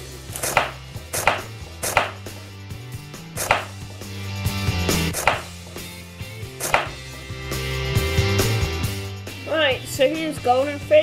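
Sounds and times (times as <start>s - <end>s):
knife chopping carrot on wood: 0.4s - 2.3s, 3.4s - 3.8s, 5.2s - 5.6s, 6.6s - 7.0s.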